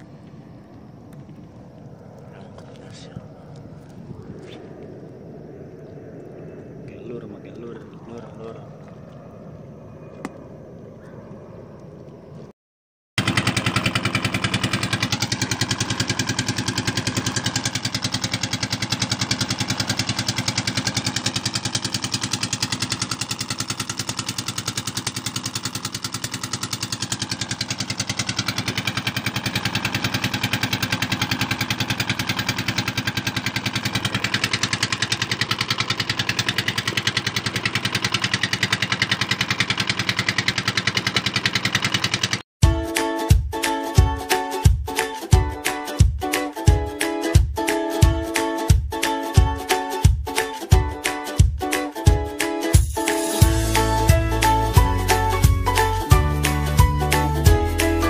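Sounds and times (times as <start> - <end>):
boat engine pulsing: 13.2 - 42.8, 52.8 - 58.0.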